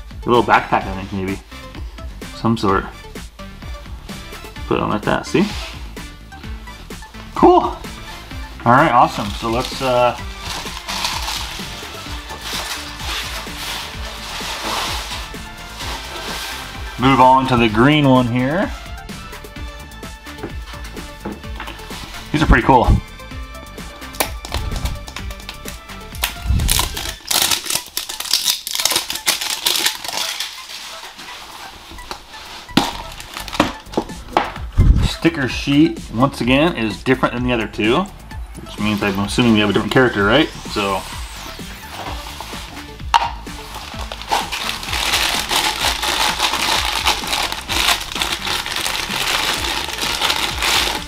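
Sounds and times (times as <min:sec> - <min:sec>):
plastic wrap crinkling: 0:08.8 - 0:17.6, 0:24.2 - 0:34.1, 0:41.8 - 0:51.0.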